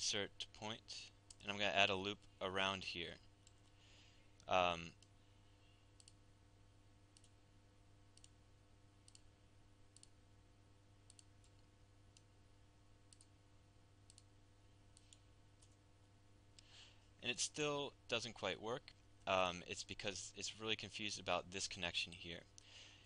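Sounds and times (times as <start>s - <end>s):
low electrical hum: 0.0s - 23.0s
computer mouse clicks: 6.0s - 6.2s, 7.2s - 7.4s, 8.2s - 8.4s, 9.0s - 9.3s, 9.9s - 10.2s, 11.1s - 12.3s, 13.1s - 13.3s, 14.1s - 14.3s.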